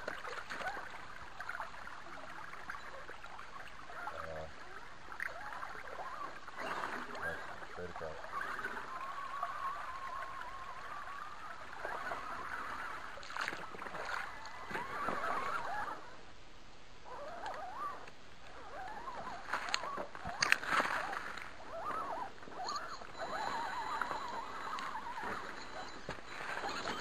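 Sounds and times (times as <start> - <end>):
rc car motors whining: 3.8 - 16.0.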